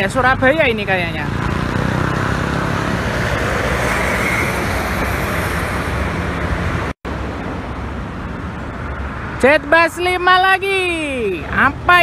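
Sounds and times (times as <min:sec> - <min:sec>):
traffic passing at speed: 0:00.0 - 0:12.0.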